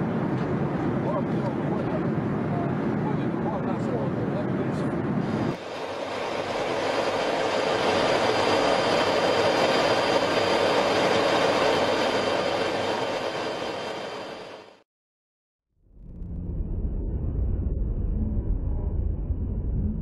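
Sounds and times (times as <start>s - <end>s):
jet aircraft roar: 0.0s - 14.8s.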